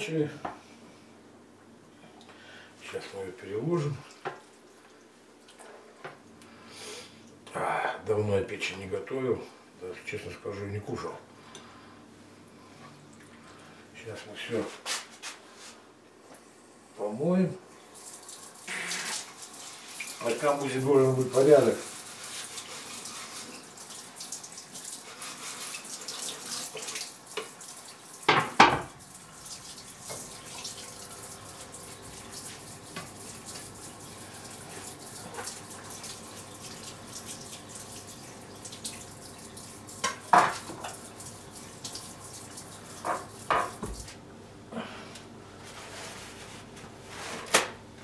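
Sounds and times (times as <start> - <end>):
kitchenware knocking against sink: 28.3 - 28.9
tap running into sink: 43.0 - 44.1.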